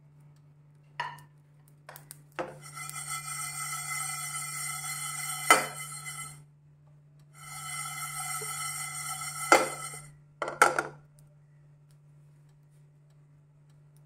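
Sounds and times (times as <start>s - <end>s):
pan knocking: 2.4s - 6.4s, 7.4s - 10.9s
seeds rattling in a pan: 2.5s - 6.4s, 7.4s - 10.1s.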